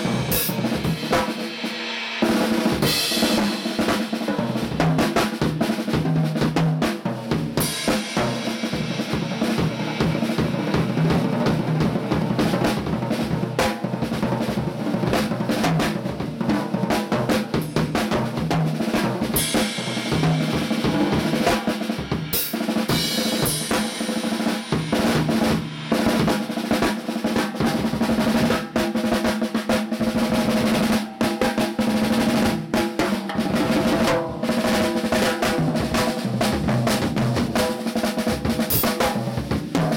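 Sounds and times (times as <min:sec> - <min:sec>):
cymbal crashes: 0:00.0 - 0:04.8, 0:07.6 - 0:12.4, 0:19.1 - 0:29.0
snare drum strokes and rolls: 0:00.0 - 0:39.9
toms and bass drum: 0:00.0 - 0:39.9.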